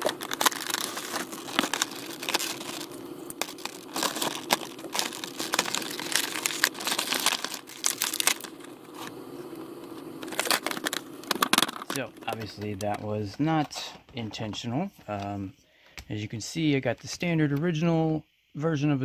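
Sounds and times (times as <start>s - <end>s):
plastic packaging crinkling: 0.0s - 13.0s.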